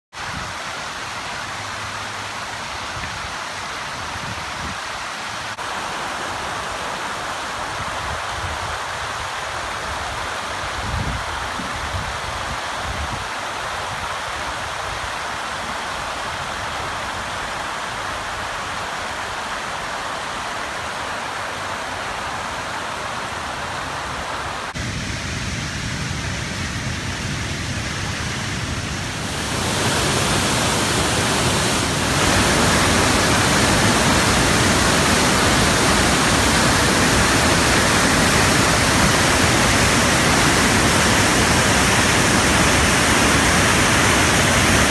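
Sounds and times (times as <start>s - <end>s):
water rushing over spillway: 0.1s - 44.9s.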